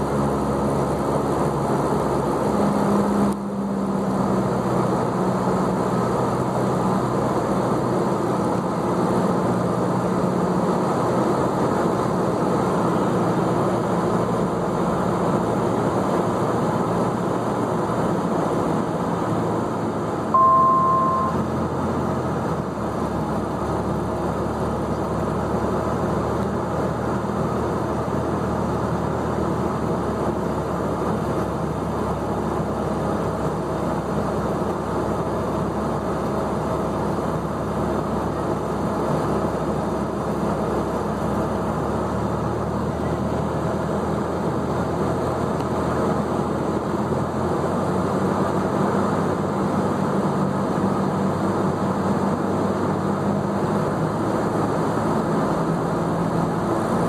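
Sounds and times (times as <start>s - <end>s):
airplane engine droning in cabin: 0.0s - 57.0s
short electronic beep: 20.3s - 21.7s.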